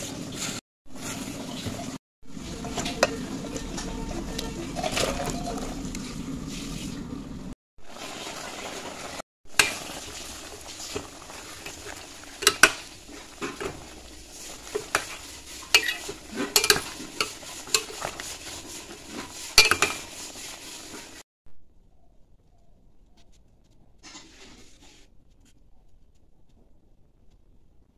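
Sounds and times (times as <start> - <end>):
simmering pot hiss: 7.8 - 21.2
spatula knocking steel pot: 12.4 - 13.8, 14.7 - 18.3, 19.6 - 20.1.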